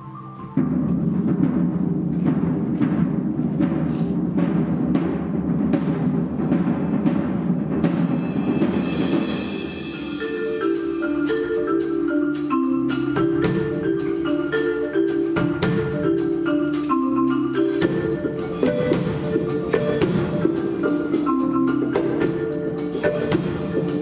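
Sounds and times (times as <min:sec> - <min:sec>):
marimba pattern: 0:00.0 - 0:24.0
drum roll: 0:00.4 - 0:24.0.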